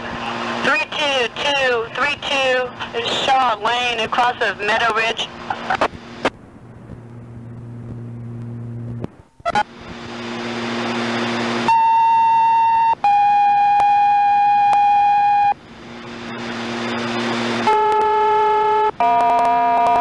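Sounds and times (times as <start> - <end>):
radio channel hiss: 0.0 - 8.1.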